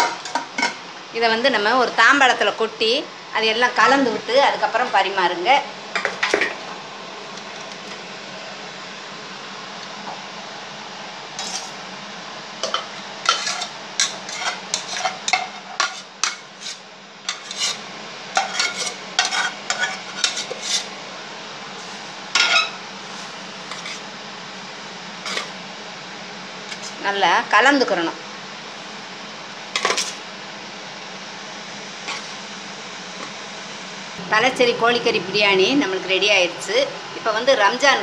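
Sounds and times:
metal spoon scraping a pot: 11.4s - 11.8s, 12.6s - 17.8s, 18.4s - 20.9s, 23.7s - 24.0s, 25.3s - 25.5s.

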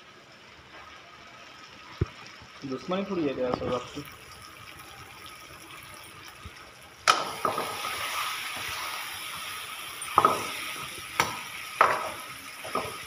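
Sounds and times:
curry simmering and sizzling: 0.0s - 13.0s
metal ladle clanking on pan: 10.0s - 10.6s, 11.2s - 13.0s.

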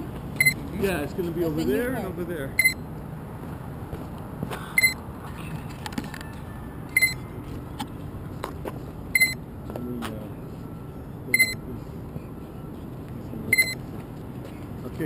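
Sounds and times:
high electronic double beeps: 0.4s - 0.6s, 2.6s - 2.8s, 6.9s - 7.3s, 9.2s - 9.4s, 11.3s - 11.6s.

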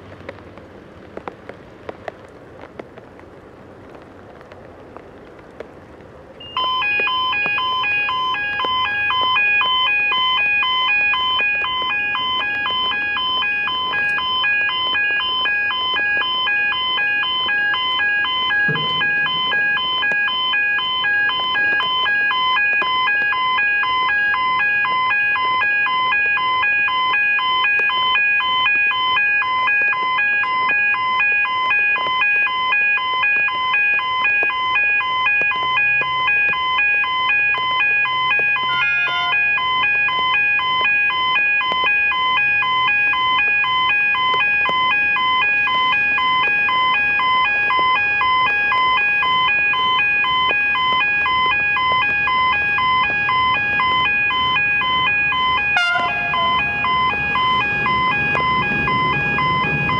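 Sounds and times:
level crossing bell ringing: 38.6s - 39.7s.

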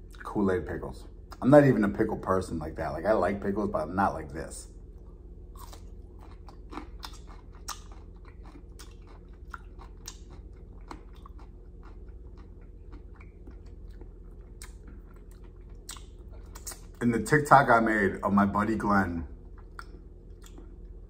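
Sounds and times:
pickle crunching and chewing: 5.5s - 17.1s, 19.4s - 21.0s.

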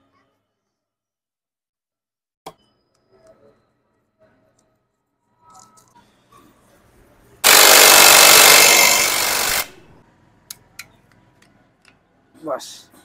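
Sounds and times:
impact wrench hammering: 7.4s - 9.8s.

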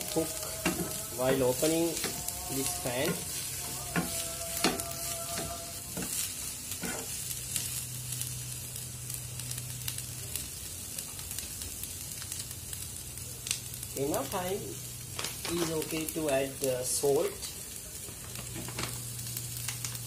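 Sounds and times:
vegetables sizzling in a pan: 0.0s - 20.0s
wooden spatula scraping a pan: 0.4s - 7.2s.

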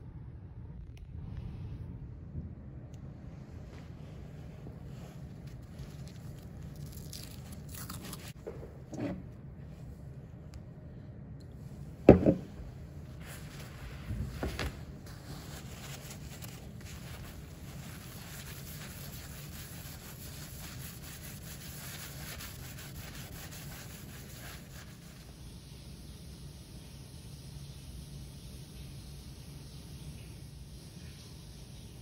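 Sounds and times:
knocks: 12.1s - 12.6s.

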